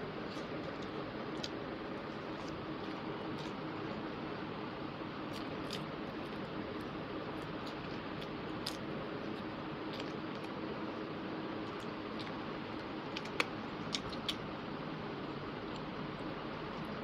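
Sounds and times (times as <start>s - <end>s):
chewing: 0.0s - 4.2s, 5.2s - 10.6s, 11.6s - 14.5s
faint hum: 0.0s - 17.0s.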